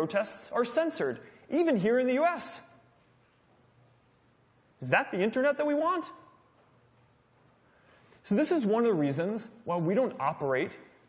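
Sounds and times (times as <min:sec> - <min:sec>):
man speaking: 0:00.0 - 0:02.9, 0:04.8 - 0:06.4, 0:08.2 - 0:11.0.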